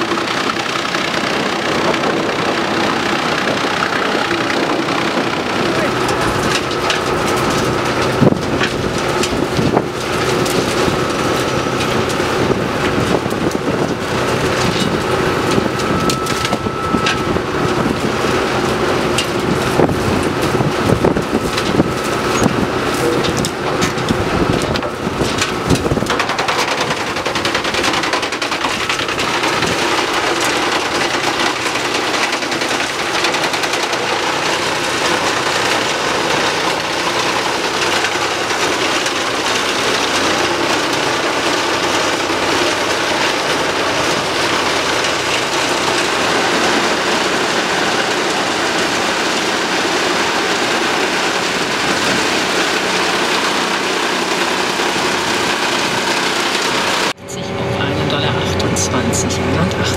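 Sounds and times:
wood chipper cracking branches: 0:00.0 - 0:57.2
tractor engine running: 0:00.0 - 0:59.9.

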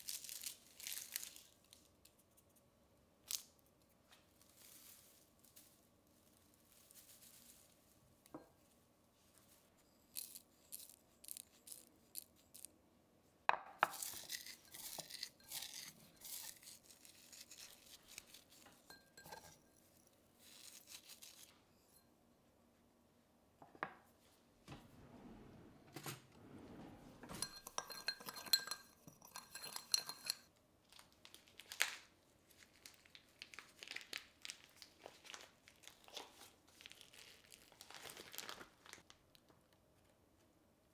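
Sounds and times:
dried leaves crumbled by hand: 0:00.0 - 0:01.6, 0:30.9 - 0:39.1
light glass clinks: 0:27.2 - 0:30.5
plastic wrap crinkling: 0:30.8 - 0:39.5.

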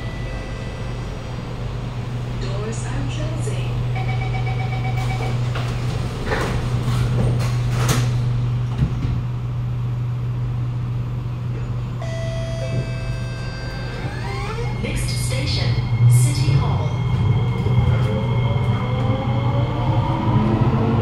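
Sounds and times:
train car hum: 0:00.0 - 0:21.0
train drive whine: 0:00.0 - 0:21.0
sliding doors shutting: 0:05.0 - 0:09.2, 0:12.6 - 0:15.7.

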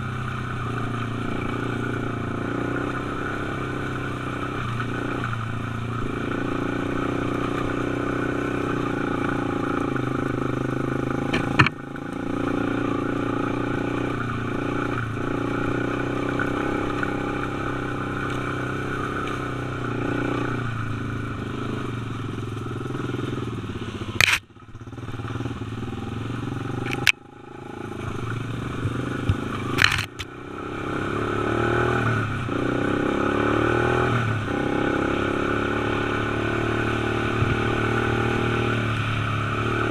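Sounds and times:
dirt bike engine revving: 0:00.0 - 0:39.9
sharp knocks: 0:11.3 - 0:11.8.

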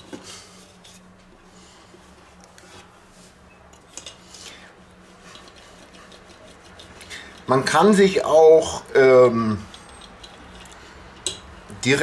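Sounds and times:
low steady hum: 0:00.0 - 0:12.0
rolling pin rubbing on dough: 0:04.4 - 0:08.7.

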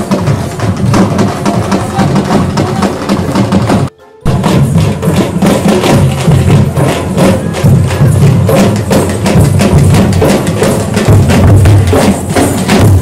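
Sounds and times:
drummers beating barrel drums: 0:00.0 - 0:13.0.

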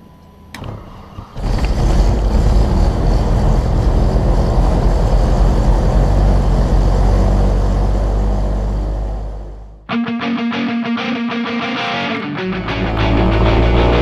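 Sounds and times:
click: 0:00.2 - 0:00.8
aircraft engine running: 0:00.6 - 0:14.0.

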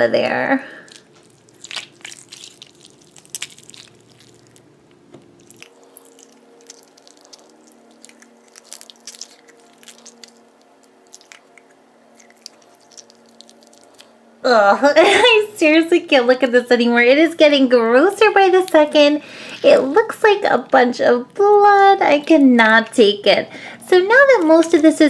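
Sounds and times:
wet slime squelching: 0:00.7 - 0:14.2.

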